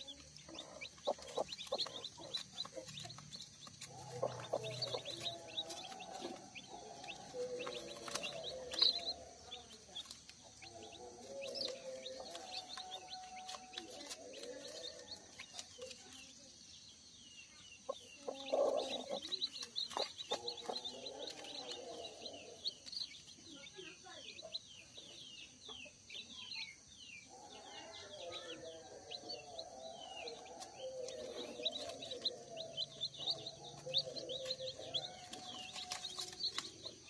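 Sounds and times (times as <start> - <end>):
hen clucking: 0.0 - 16.0, 17.8 - 23.2, 28.8 - 37.0
chicks peeping: 0.0 - 37.0.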